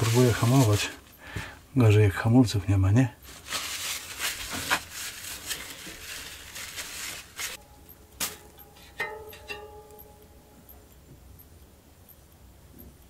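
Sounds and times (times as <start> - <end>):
handling bicycle parts: 0.0 - 1.5, 3.2 - 7.6
metallic ringing tones: 7.5 - 12.9.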